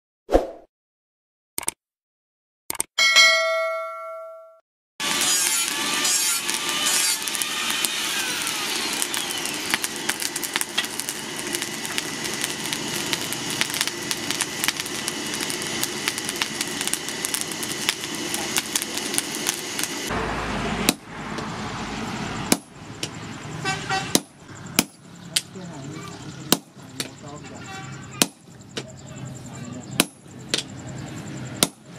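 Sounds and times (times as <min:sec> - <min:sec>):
coals crackling and popping: 0:05.0 - 0:20.1
forge fire rushing air: 0:07.6 - 0:22.8.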